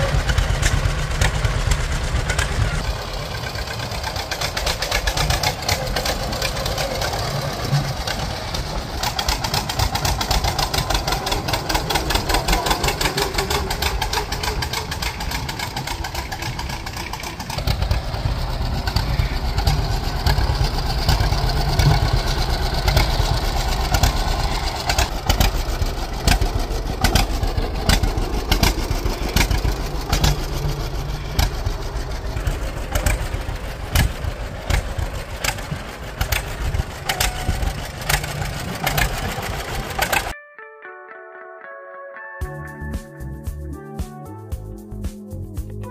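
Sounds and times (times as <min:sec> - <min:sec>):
tractor engine running: 0:00.0 - 0:40.4.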